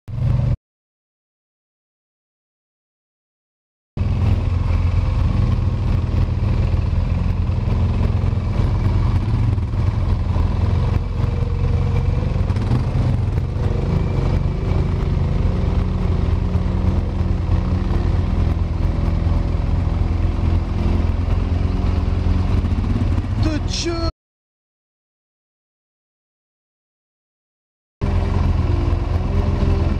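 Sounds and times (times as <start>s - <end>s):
quad bike engine running: 0.1s - 0.6s, 4.0s - 24.1s, 28.0s - 29.9s.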